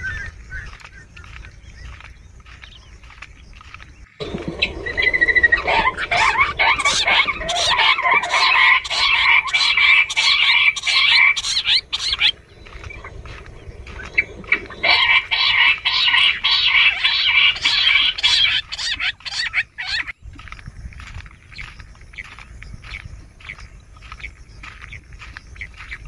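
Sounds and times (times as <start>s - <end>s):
quail chattering trills: 4.2s - 20.1s.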